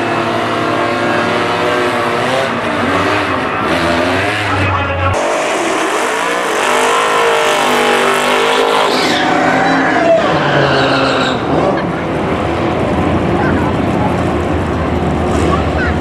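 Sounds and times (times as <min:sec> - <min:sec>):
car engines revving: 0:00.0 - 0:16.0
tyres squealing: 0:06.2 - 0:11.8.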